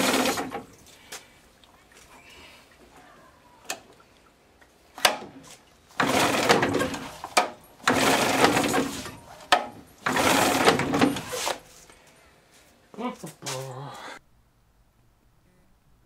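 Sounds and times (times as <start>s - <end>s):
outboard engine cranking: 0.0s - 0.7s, 5.9s - 11.5s.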